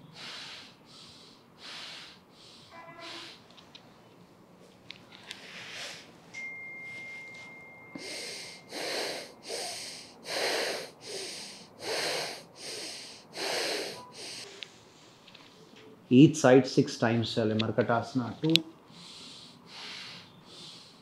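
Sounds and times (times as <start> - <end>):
man breathing rhythmically: 0.0 - 3.6, 5.1 - 6.3, 7.9 - 15.2, 18.7 - 21.0
faint high tone: 2.7 - 3.2.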